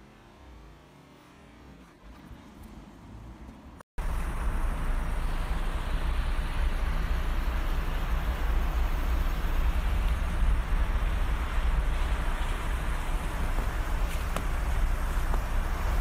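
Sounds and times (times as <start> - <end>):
wind buffeting microphone: 4.1 - 16.0.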